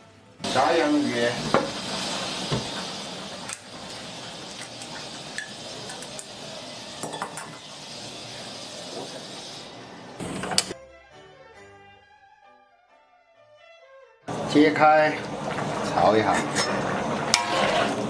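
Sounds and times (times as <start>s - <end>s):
food hissing in a wok: 0.4s - 10.2s.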